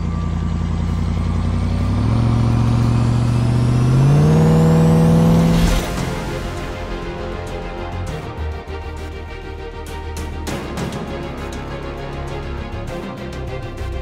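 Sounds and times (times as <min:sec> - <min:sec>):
high supercharger whine: 0:00.0 - 0:08.2
engine accelerating hard: 0:00.0 - 0:14.0.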